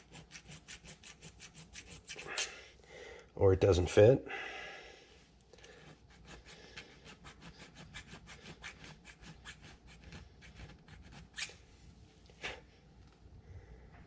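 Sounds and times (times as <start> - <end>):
hand file scraping metal: 0.0 - 2.6, 5.6 - 11.6.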